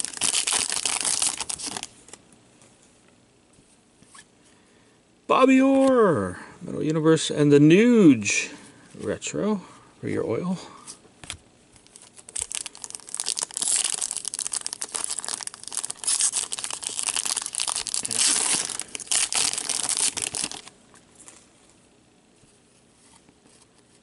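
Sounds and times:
foil wrapper tearing and crinkling: 0:00.0 - 0:02.2, 0:11.8 - 0:20.7.

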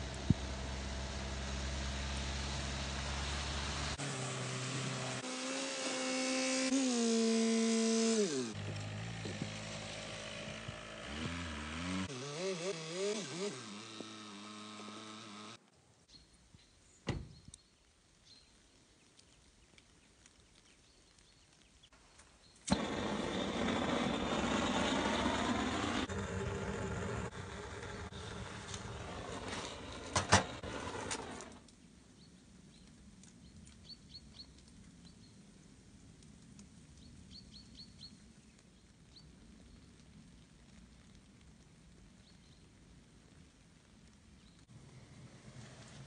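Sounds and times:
suv engine driving: 0:00.0 - 0:05.2, 0:08.0 - 0:15.6, 0:22.7 - 0:31.6.

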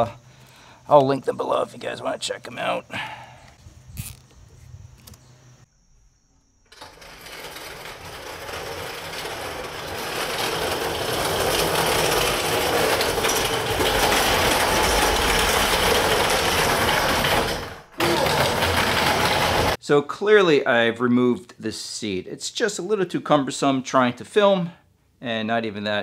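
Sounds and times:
dolly casters rolling on concrete: 0:06.7 - 0:19.8.

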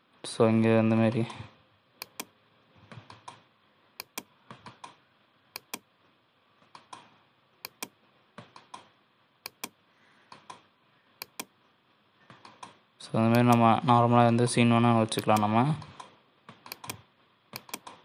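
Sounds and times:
computer mouse clicking: 0:02.0 - 0:03.4, 0:04.0 - 0:05.9, 0:06.6 - 0:11.6, 0:12.3 - 0:13.6, 0:15.1 - 0:18.0.

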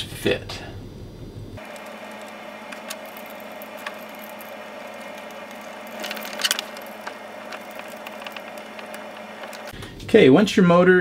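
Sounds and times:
steady low hum: 0:00.6 - 0:10.1
metal parts clattering: 0:01.6 - 0:09.7
metal parts clicking: 0:01.6 - 0:09.8.

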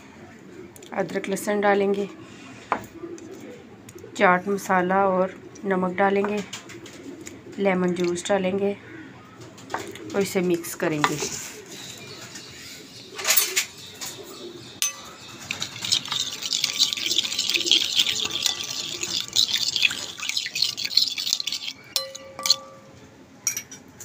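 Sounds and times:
spoon knocking glass bowl: 0:14.8 - 0:15.2, 0:18.3 - 0:22.9
wet squelching stirring: 0:14.8 - 0:22.8.

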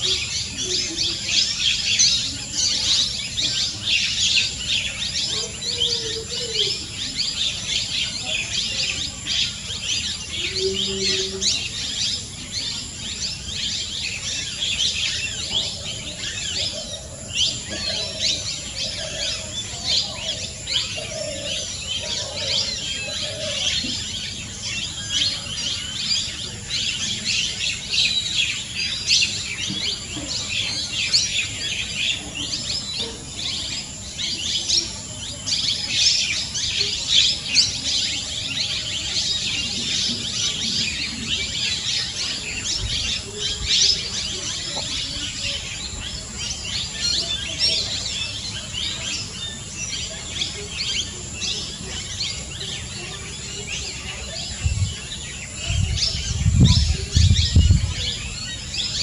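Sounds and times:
birds chirping: 0:00.0 - 0:59.0.

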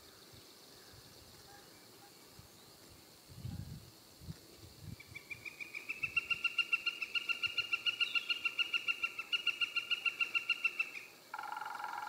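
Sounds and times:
woodpecker long call: 0:05.1 - 0:12.0.

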